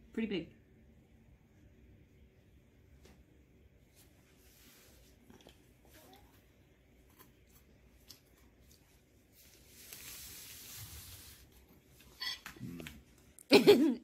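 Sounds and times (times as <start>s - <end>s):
faint chewing: 5.0s - 9.4s.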